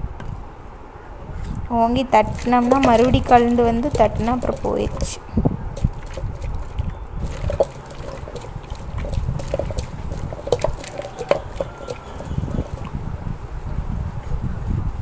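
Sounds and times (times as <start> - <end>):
stone grinder squelching and scraping: 2.2 - 5.2, 5.8 - 13.0.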